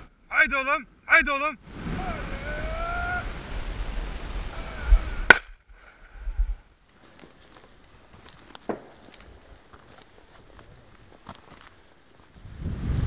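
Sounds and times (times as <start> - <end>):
wind on microphone: 1.6 - 6.7, 12.4 - 13.0
sharp crack: 5.2 - 5.9
footsteps on dirt track: 6.9 - 12.6.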